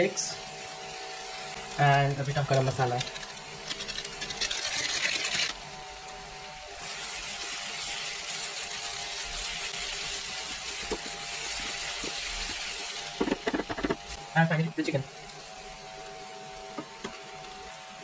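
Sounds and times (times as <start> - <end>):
spice hissing into pan: 0.0 - 18.0
vegetables sizzling in a pan: 0.0 - 18.0
spatula stirring and scraping: 2.0 - 5.6, 6.8 - 14.2.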